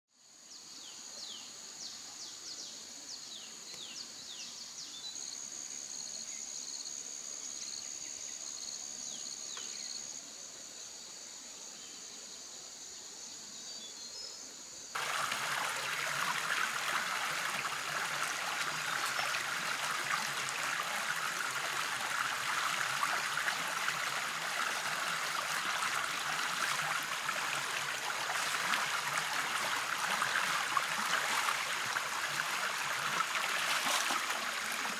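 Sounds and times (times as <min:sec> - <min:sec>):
stream running over rocks: 0:15.0 - 0:34.9.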